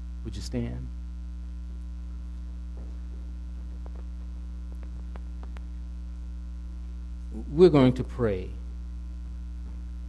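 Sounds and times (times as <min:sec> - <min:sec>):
electrical mains hum: 0:00.0 - 0:10.0
faint clicks and rustles: 0:02.3 - 0:05.9.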